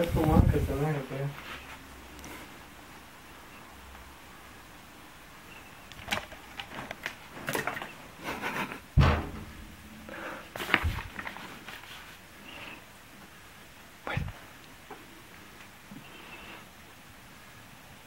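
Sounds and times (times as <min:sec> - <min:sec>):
heavy thump: 0:09.0 - 0:10.1
rustling: 0:09.0 - 0:12.8.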